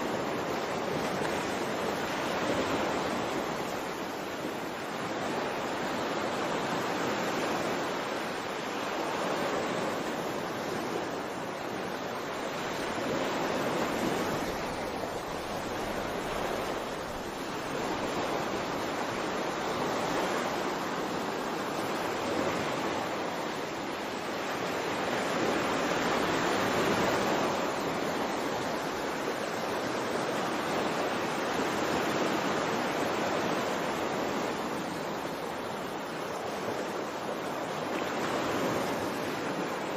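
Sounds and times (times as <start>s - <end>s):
ocean waves washing in: 0.0s - 39.9s.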